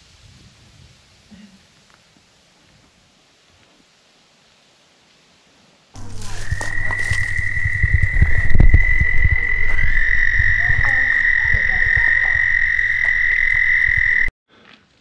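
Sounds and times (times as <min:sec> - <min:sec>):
loud high-pitched tone: 0:06.0 - 0:14.3
low thumps: 0:06.0 - 0:14.3.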